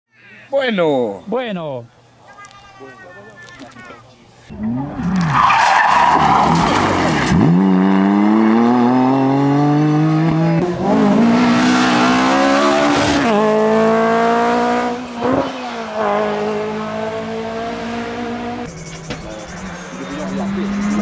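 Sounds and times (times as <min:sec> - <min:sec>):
car engine accelerating: 0:04.5 - 0:21.0.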